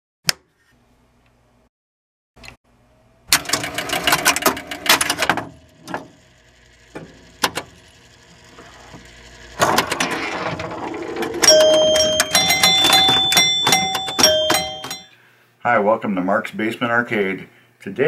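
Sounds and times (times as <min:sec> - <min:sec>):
pinball relay clacking: 0:09.6 - 0:15.1.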